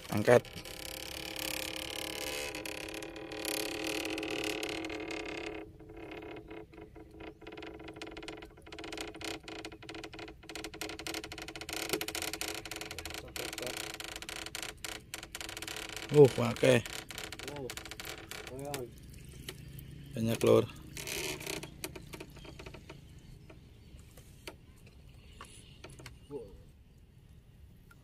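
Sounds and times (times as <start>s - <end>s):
irregular clicks and taps: 19.3s - 19.9s.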